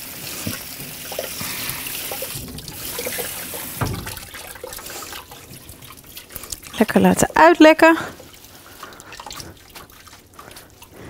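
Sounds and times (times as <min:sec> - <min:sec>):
tap water running into sieve: 0:00.0 - 0:11.0
water draining and dripping: 0:00.0 - 0:11.0
dull knock: 0:03.8 - 0:04.4.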